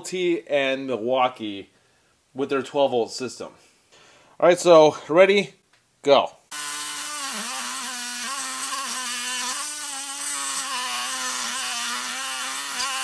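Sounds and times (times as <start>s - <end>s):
reciprocating saw cutting steel pipe: 6.5s - 13.0s.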